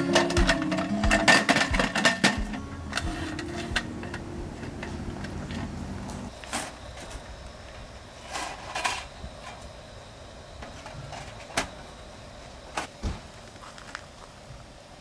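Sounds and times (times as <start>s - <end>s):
sheet metal clanks and scrapes: 0.0s - 5.7s.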